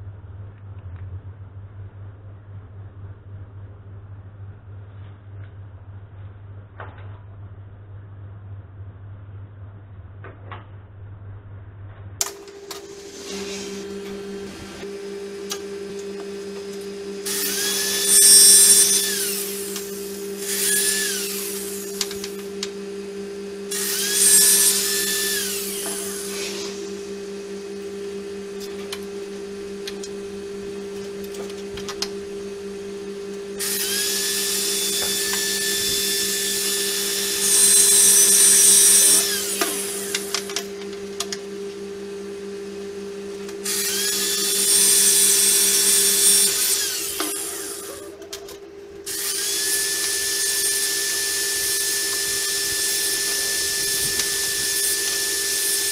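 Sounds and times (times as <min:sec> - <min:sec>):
low hum: 0:00.0 - 0:36.7
electric drill whining: 0:12.2 - 0:55.9.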